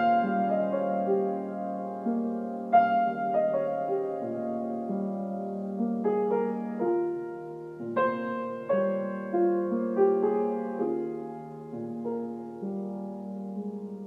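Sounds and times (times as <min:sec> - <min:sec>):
soft solo piano: 0:00.0 - 0:14.0.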